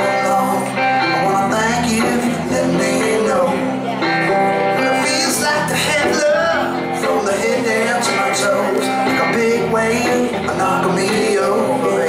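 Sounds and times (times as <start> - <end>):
electric guitars playing: 0.0 - 12.0.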